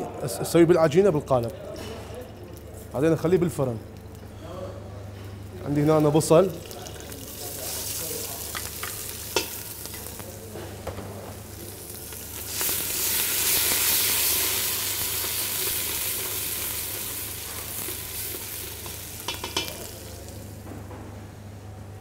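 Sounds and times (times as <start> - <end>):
onion sizzling in hot oil: 5.6 - 10.4, 11.2 - 20.6
spoon tapping pot: 19.2 - 19.8.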